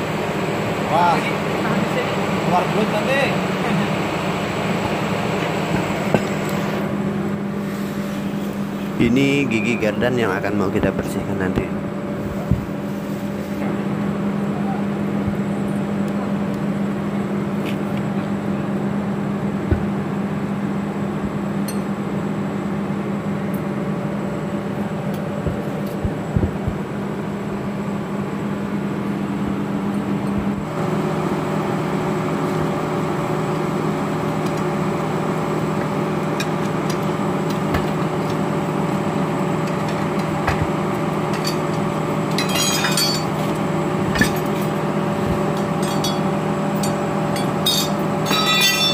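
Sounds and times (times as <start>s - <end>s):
machine drone: 0.0s - 48.9s
metallic clinks: 45.6s - 48.9s.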